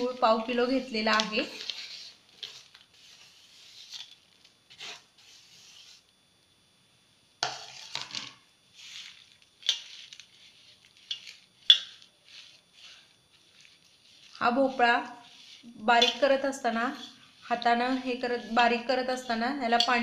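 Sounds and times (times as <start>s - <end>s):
hand mashing food in steel bowl: 8.8s - 20.0s.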